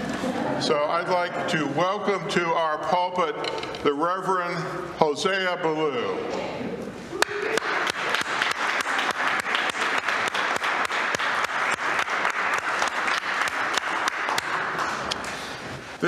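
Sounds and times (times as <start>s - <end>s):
crowd applauding: 7.2s - 15.6s.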